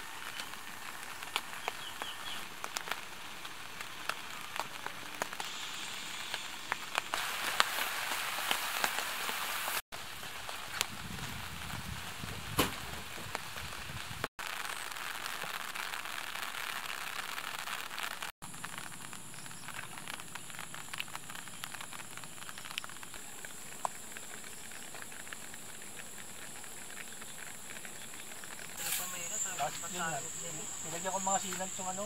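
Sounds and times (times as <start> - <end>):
light rain hissing: 0.0 - 32.0
raindrops pattering: 0.0 - 32.0
high insect drone: 18.5 - 32.0.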